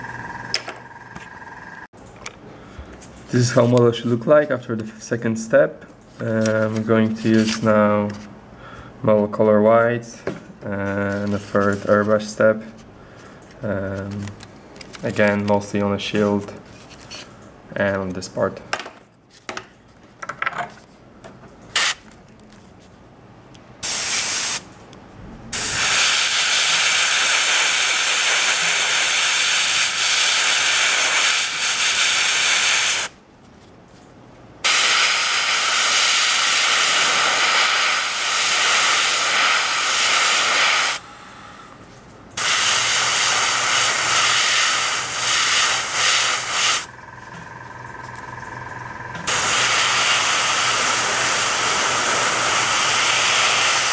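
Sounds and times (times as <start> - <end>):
airbrush spraying hiss: 23.8 - 24.6, 25.6 - 33.1, 34.6 - 41.0, 42.4 - 46.9, 49.3 - 53.9.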